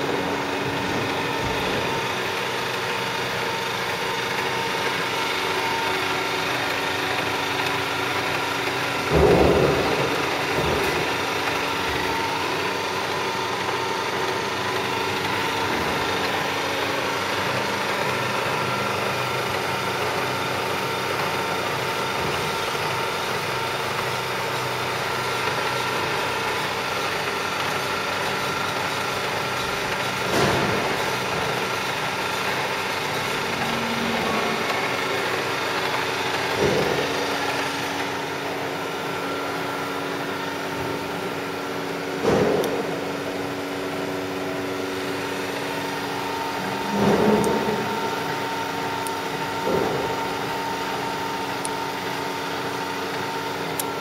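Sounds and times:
milling machine humming: 0.0s - 54.0s
machine clunk: 9.0s - 13.4s, 29.6s - 39.4s, 42.2s - 43.8s, 46.0s - 50.7s.

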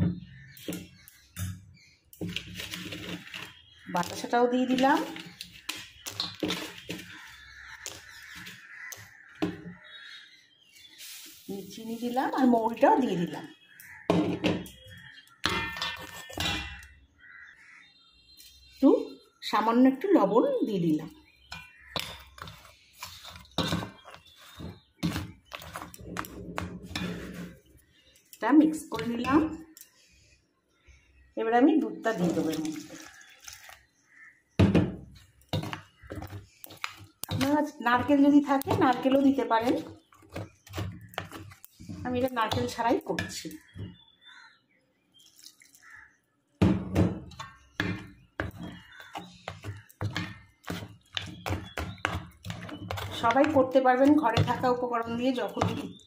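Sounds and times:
spoon scraping dry mix in bowl: 2.2s - 9.1s, 21.3s - 28.4s, 35.2s - 43.8s, 47.3s - 56.0s
spoon clinking against metal bowl: 15.4s - 17.0s.

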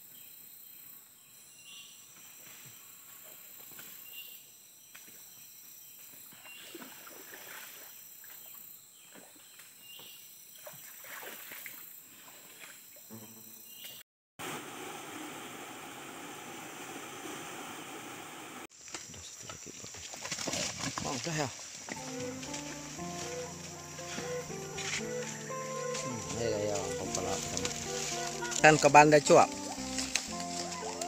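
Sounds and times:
high-pitched insect drone: 21.9s - 31.0s.

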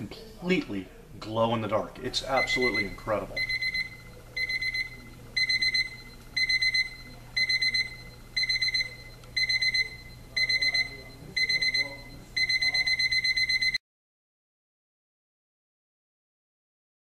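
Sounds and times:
alarm clock beeping: 2.3s - 13.8s.

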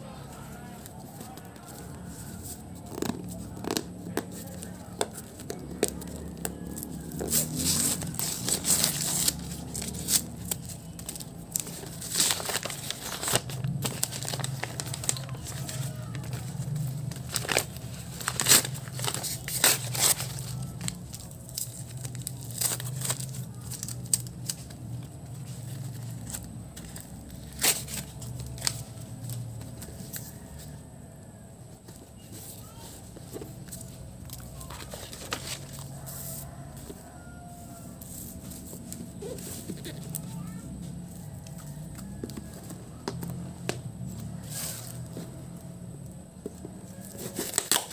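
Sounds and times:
paper and tape tearing: 1.7s - 24.8s, 25.5s - 30.4s, 46.9s - 47.9s.

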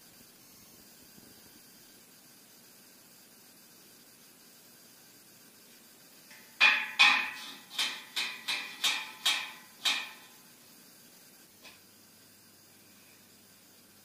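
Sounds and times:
hammer striking steel: 6.3s - 10.4s.

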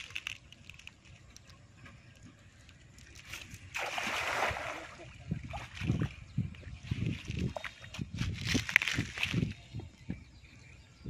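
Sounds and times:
cast net splashing on water: 3.7s - 5.8s.

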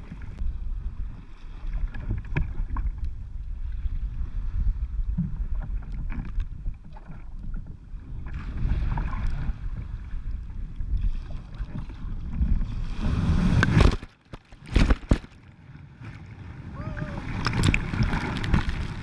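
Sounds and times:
waves rushing and splashing: 12.6s - 14.0s, 16.0s - 19.0s.

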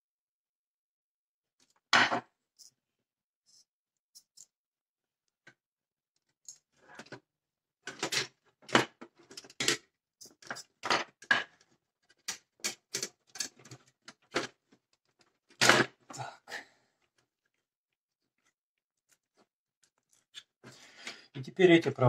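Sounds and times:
hands working wires in plastic housing: 6.2s - 16.2s.

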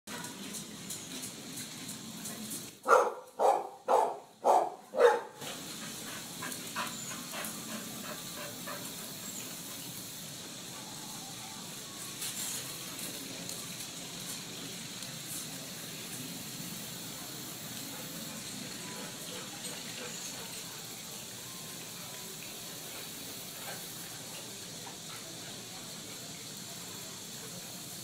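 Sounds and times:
dog barking: 2.8s - 5.4s.

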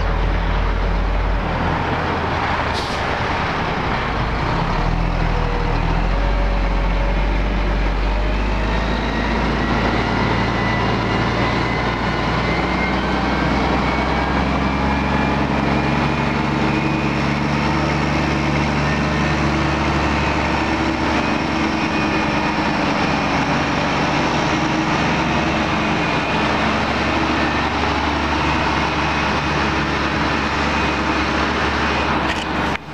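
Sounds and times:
heavy truck engine: 0.0s - 32.9s.

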